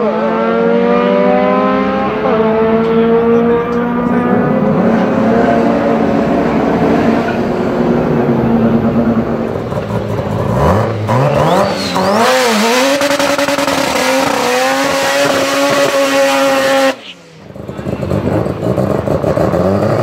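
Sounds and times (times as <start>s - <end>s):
car engine revving: 0.0s - 20.0s.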